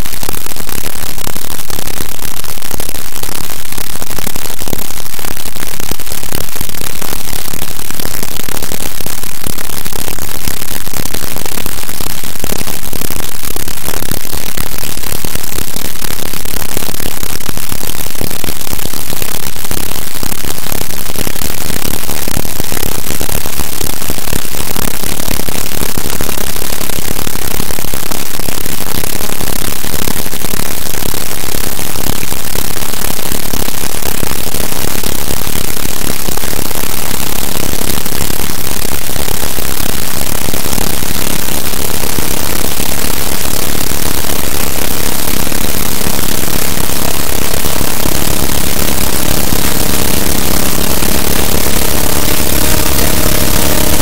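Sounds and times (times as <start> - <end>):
harsh noise music: 47.2 - 54.0.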